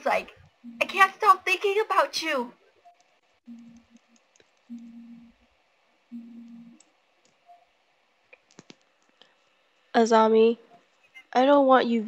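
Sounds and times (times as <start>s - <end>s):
computer mouse clicking: 2.9s - 4.9s, 8.3s - 9.4s
short flat low hums: 2.9s - 5.4s, 6.1s - 6.9s.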